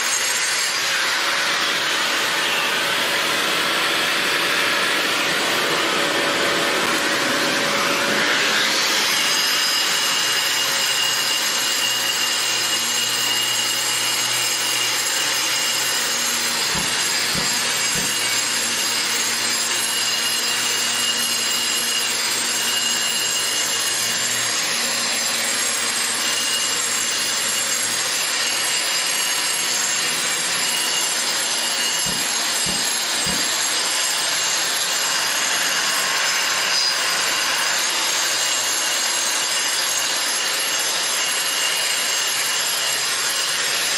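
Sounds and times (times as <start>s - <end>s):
angle grinder grinding concrete: 0.0s - 43.9s
vacuum running: 16.5s - 18.2s.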